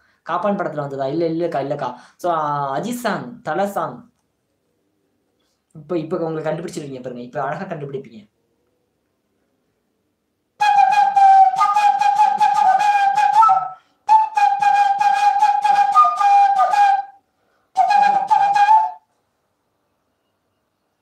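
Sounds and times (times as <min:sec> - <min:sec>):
flute melody: 0:10.6 - 0:17.2, 0:17.8 - 0:19.1.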